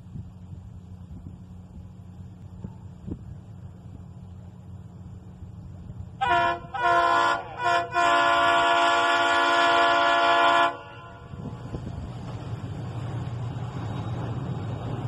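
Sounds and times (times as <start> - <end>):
steady low rumble: 0.0 - 7.9, 10.7 - 15.0
locomotive horn blasts: 6.2 - 11.4.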